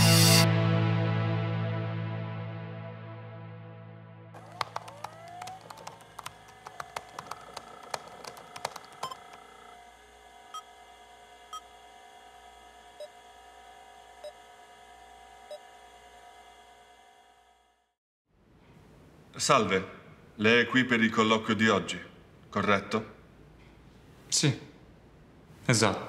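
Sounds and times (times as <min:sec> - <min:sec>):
keyboard keys clicking: 0:04.4 - 0:09.5.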